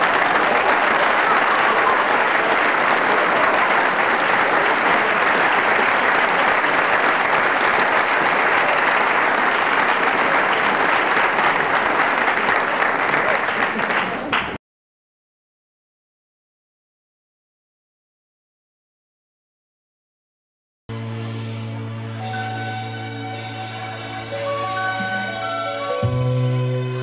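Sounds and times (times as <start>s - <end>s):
crowd applauding: 0.0s - 14.6s.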